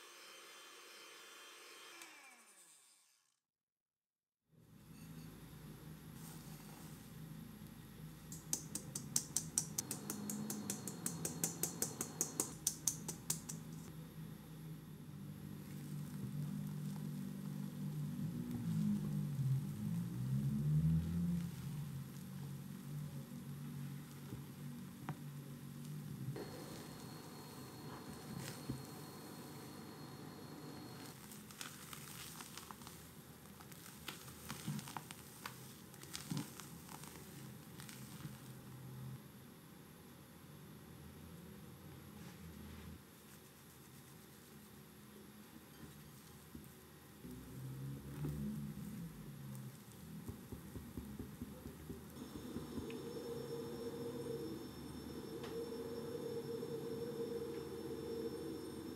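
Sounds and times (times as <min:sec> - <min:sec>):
wet squishing of batter: 0:15.5 - 0:24.4, 0:31.1 - 0:38.7.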